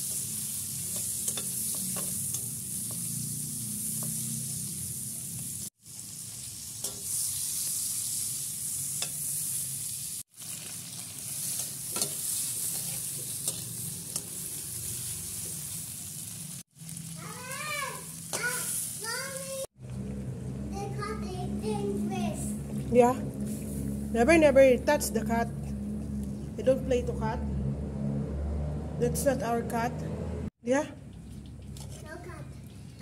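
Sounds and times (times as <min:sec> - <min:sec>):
food sizzling in hot oil: 0:00.0 - 0:25.1.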